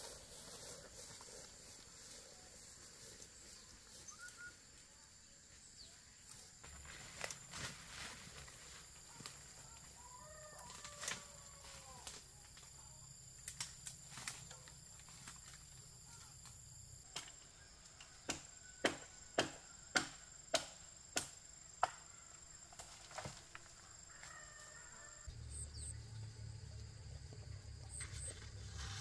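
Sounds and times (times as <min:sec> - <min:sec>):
high insect trill: 0:00.0 - 0:29.0
blade chopping bamboo: 0:18.2 - 0:22.0.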